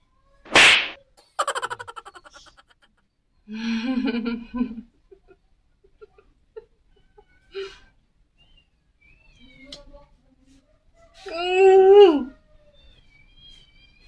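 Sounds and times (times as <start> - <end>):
woman laughing: 1.4 - 2.9.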